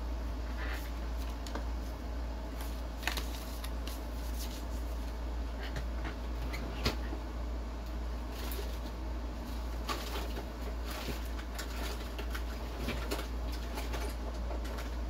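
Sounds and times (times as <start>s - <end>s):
steady low hum: 0.0s - 15.0s
box handling clicks and rustles: 2.6s - 4.6s.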